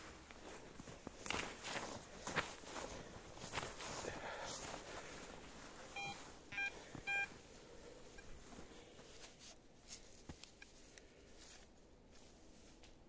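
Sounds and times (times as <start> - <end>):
faint rustling: 0.0 - 13.0
metal detector beeps: 6.0 - 7.3.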